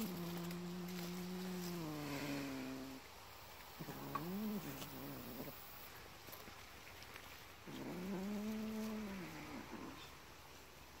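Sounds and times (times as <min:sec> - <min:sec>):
cat yowling growls: 0:07.7 - 0:10.0.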